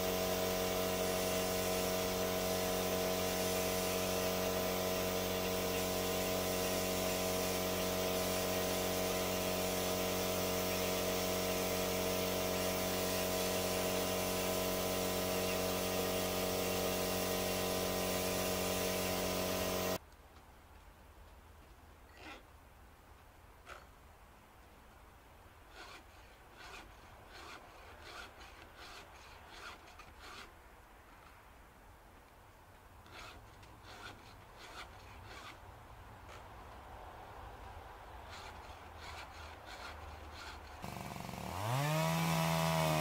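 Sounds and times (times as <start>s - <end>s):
chainsaw cutting wood: 0.0s - 20.0s, 25.7s - 30.6s, 33.0s - 35.6s, 38.2s - 43.0s.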